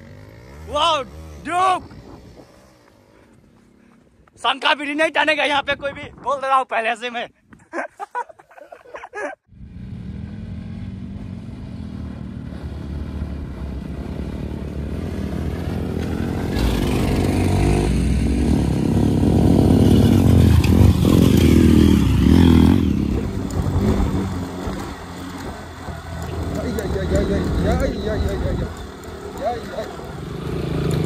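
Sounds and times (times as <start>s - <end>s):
dirt bike engines revving: 0.0s - 6.0s, 9.2s - 31.0s.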